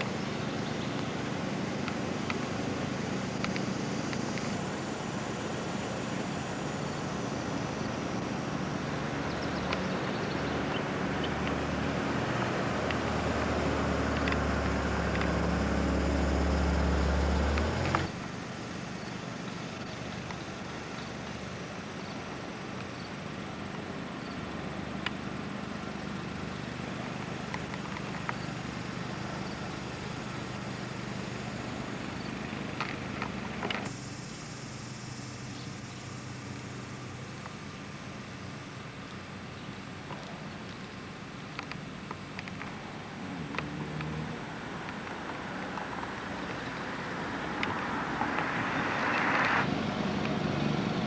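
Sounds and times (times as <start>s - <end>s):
engine running: 0.0s - 51.0s
faint clicks: 40.0s - 42.8s.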